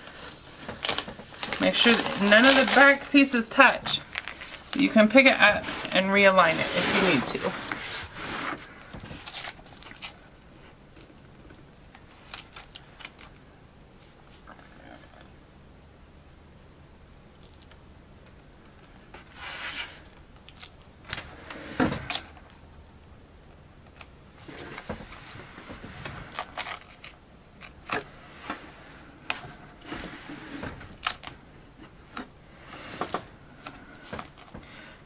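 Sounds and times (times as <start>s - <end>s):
plastic sheet crinkling: 0.0s - 8.2s.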